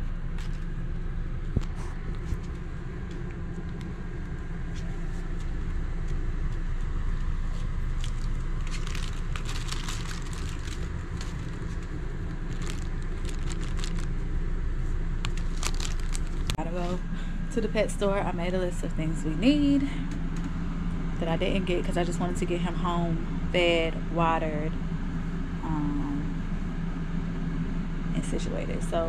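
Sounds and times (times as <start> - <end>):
steady low rumble: 0.0 - 29.0
toy clicking and crinkling: 8.0 - 11.9, 12.5 - 14.1, 15.3 - 16.6.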